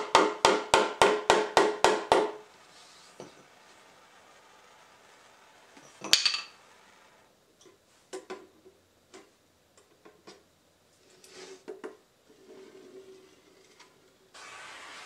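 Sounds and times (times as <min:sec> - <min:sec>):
short scrape: 0:11.0 - 0:11.6, 0:14.4 - 0:15.0.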